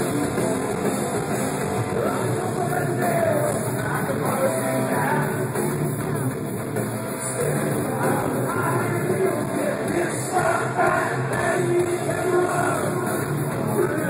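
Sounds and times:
distorted electric guitars: 0:00.0 - 0:14.0
live hard rock band: 0:00.0 - 0:14.0
person singing: 0:01.9 - 0:06.4, 0:07.2 - 0:14.0.

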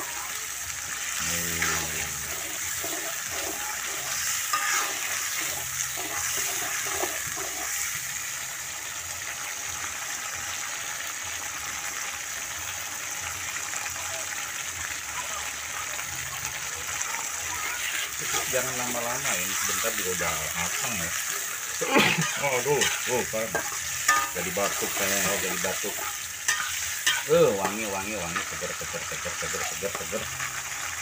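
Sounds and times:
sauce frying and bubbling: 0:00.0 - 0:31.0
metal spatula scraping wok: 0:01.0 - 0:08.2, 0:17.7 - 0:30.5.

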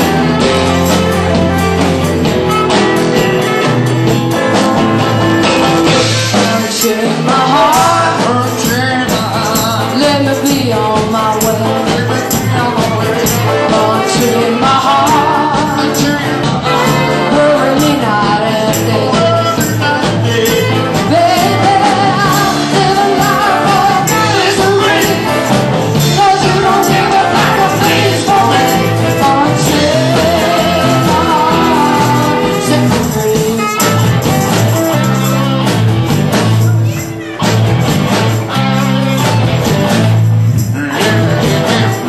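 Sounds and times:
live band performing: 0:00.0 - 0:42.0
jingling percussion: 0:00.1 - 0:42.0
person singing: 0:05.9 - 0:35.7, 0:36.6 - 0:37.5, 0:40.6 - 0:42.0.

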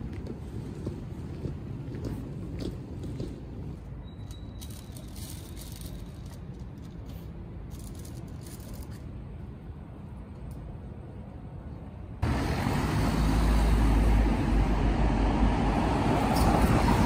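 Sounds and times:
distant traffic rumble: 0:00.0 - 0:17.0.

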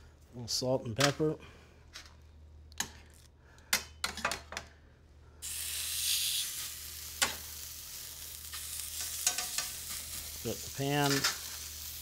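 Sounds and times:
meat sizzling in a skillet: 0:05.4 - 0:12.0
metal tongs clinking on cookware: 0:08.5 - 0:10.2, 0:10.9 - 0:11.6.

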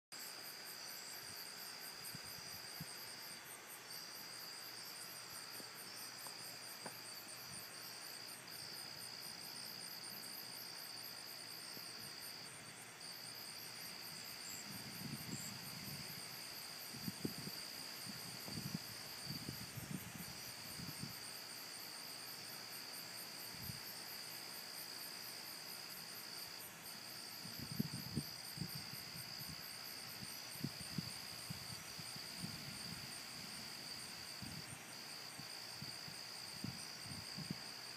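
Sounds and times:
fast pulsing insect chirp: 0:00.2 - 0:23.8
crickets trilling: 0:00.2 - 0:37.9.

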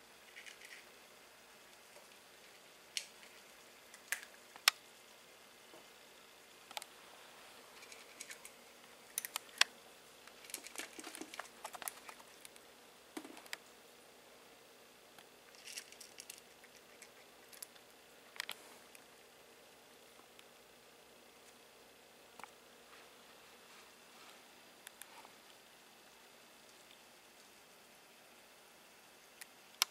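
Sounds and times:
cat crunching dry kibble: 0:07.7 - 0:09.7, 0:10.3 - 0:12.6, 0:15.5 - 0:17.8.

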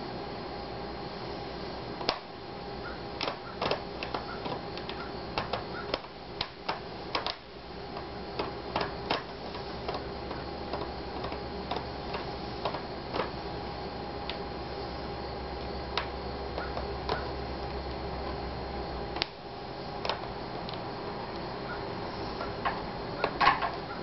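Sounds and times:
small plastic and metal parts clicking: 0:09.9 - 0:13.3.

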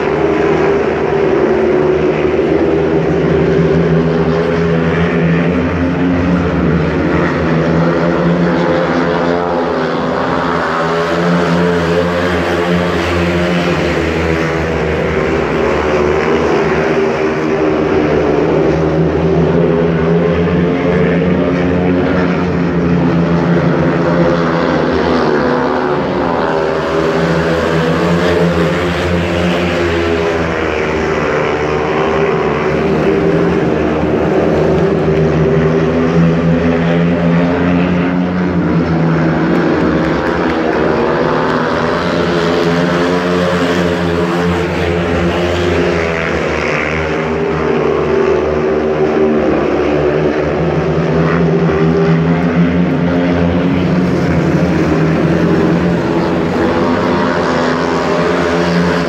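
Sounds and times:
motorcycles racing: 0:00.0 - 0:59.0.

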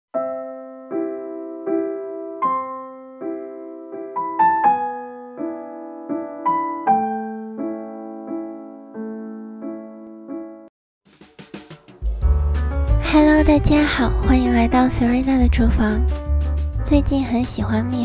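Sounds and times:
soft piano chords: 0:00.1 - 0:10.7, 0:12.2 - 0:18.0.

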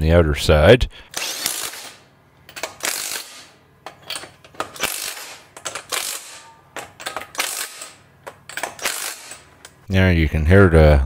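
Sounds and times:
impact wrench hammering: 0:01.1 - 0:09.8.

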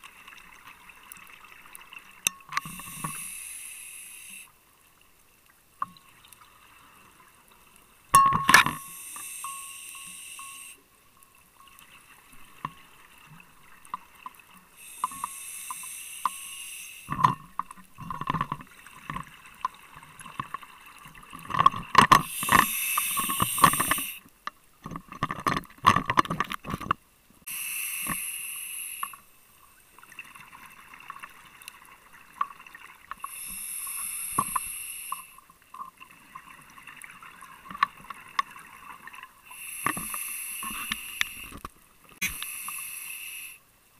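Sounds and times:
small clicks and crackles: 0:00.0 - 0:27.1, 0:28.9 - 0:42.9
diver breathing through regulator: 0:02.6 - 0:04.5, 0:08.8 - 0:10.8, 0:14.8 - 0:17.2, 0:22.2 - 0:24.2, 0:27.5 - 0:29.2, 0:33.2 - 0:35.4, 0:39.5 - 0:41.6, 0:42.2 - 0:43.6.

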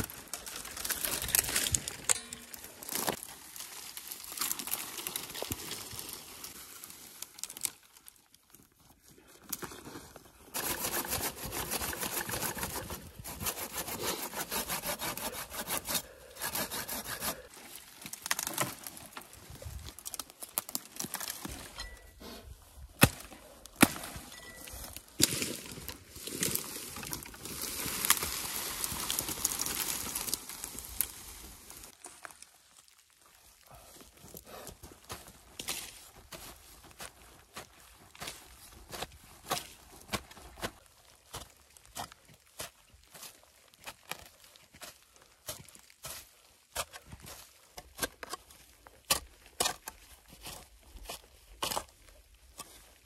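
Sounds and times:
dry branches crackling and snapping: 0:00.0 - 0:08.7, 0:16.5 - 0:21.8, 0:22.9 - 0:33.7.

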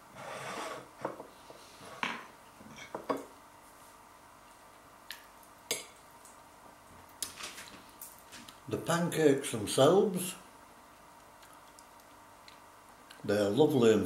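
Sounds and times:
fork scraping a plate: 0:00.1 - 0:01.0.

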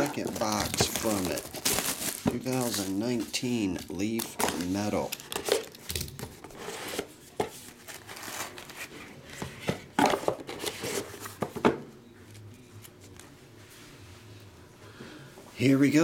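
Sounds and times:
plastic wrap crinkling and tearing: 0:00.0 - 0:06.5, 0:07.7 - 0:08.9.

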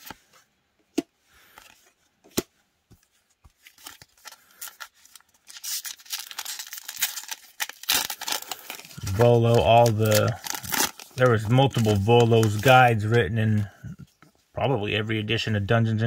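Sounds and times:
foil wrapper crinkling and tearing: 0:03.6 - 0:13.2.

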